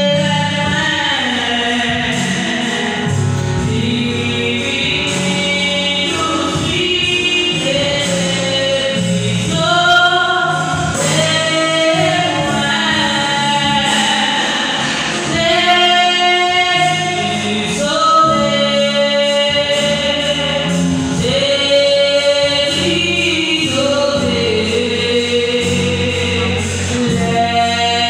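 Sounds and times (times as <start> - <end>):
musical backing: 0.0 - 28.0
voices singing gospel: 0.0 - 28.0.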